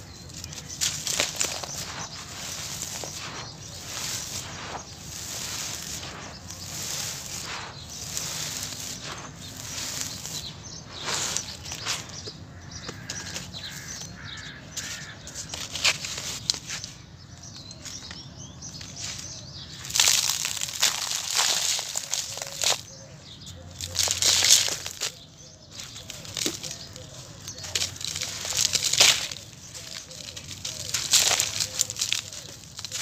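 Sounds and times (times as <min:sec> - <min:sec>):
dry dust pouring from hands: 0:00.1 - 0:12.3, 0:19.2 - 0:23.0, 0:25.8 - 0:33.0
dust showering onto mesh sieve: 0:00.8 - 0:12.1.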